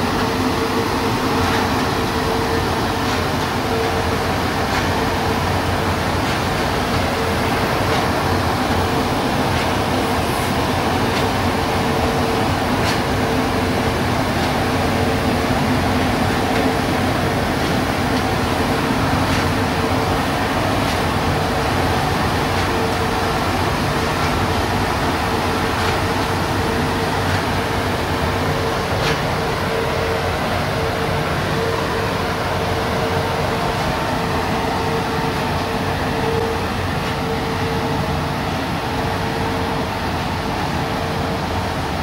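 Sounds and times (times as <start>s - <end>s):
car wash machine whirring: 0.0s - 42.0s.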